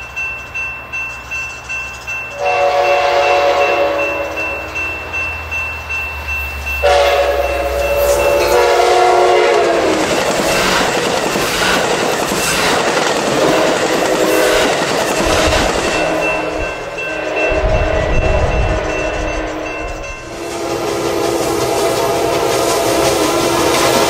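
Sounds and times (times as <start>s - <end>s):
locomotive horn: 2.4s - 4.8s, 6.8s - 10.0s, 13.4s - 14.8s, 16.0s - 23.8s
train cars clattering on rails: 5.4s - 24.0s.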